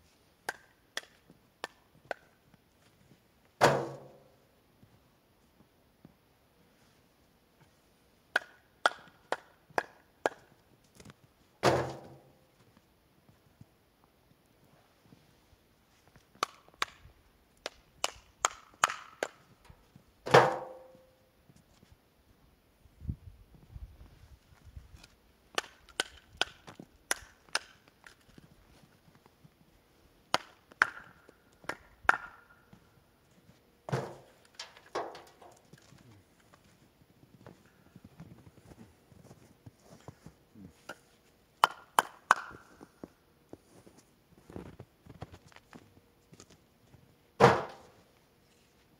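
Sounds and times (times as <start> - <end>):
wooden knocks of firewood: 3.6 - 4.2, 11.6 - 12.3, 20.2 - 20.9, 33.9 - 35.6, 47.4 - 47.9
firewood clunk with ringing tail: 3.6 - 4.3, 11.6 - 12.3, 20.2 - 21.1, 47.4 - 47.9
firewood clacking together: 17.6 - 19.4, 25.6 - 28.4, 30.3 - 32.5, 33.9 - 35.9.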